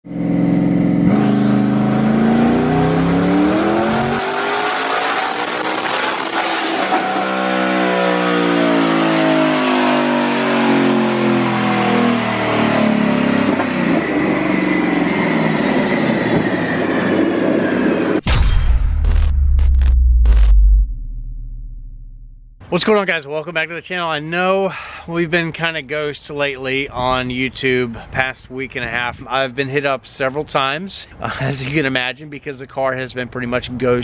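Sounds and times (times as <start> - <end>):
car engine revving on dyno: 0.1 - 18.2
high turbo whine: 0.1 - 22.6.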